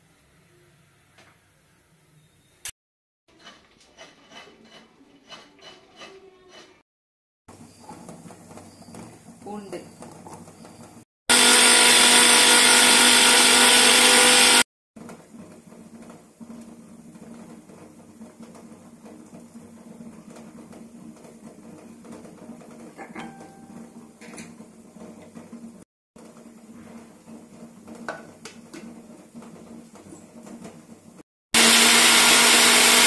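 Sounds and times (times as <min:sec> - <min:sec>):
electric mixer grinder running: 0:11.3 - 0:14.7, 0:31.6 - 0:33.0.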